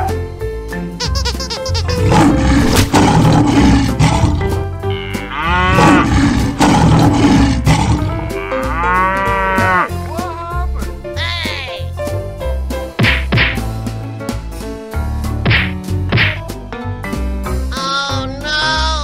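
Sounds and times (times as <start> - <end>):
background music with a beat: 8.0 - 18.3.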